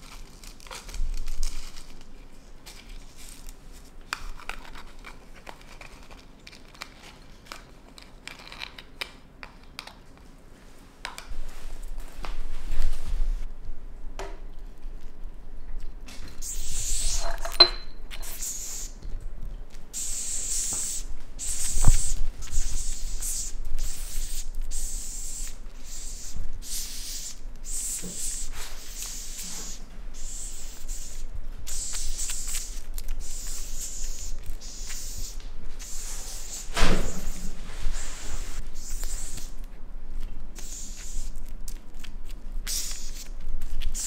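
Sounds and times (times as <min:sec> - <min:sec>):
cockroach hissing in bursts: 0:16.3 - 0:17.4, 0:18.2 - 0:19.0, 0:19.9 - 0:39.6, 0:40.6 - 0:41.4, 0:42.6 - 0:44.0.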